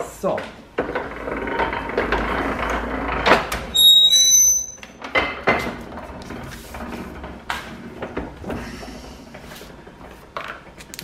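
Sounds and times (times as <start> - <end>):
blade squealing: 3.8 - 4.8.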